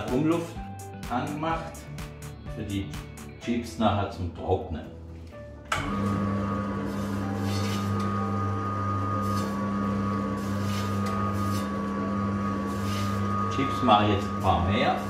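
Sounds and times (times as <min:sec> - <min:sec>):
food slicer motor humming: 0:05.7 - 0:15.0.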